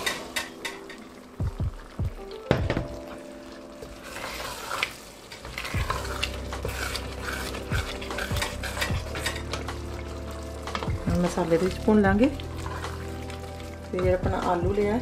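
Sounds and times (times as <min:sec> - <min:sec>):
frying hiss: 0:00.0 - 0:15.0
metal pot clunk: 0:02.5 - 0:03.1
wooden spoon scraping pot: 0:05.6 - 0:10.0, 0:10.6 - 0:13.8.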